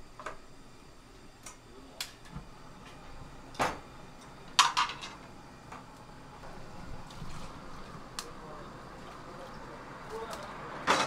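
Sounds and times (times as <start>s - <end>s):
tableware clinking: 4.6s - 5.2s.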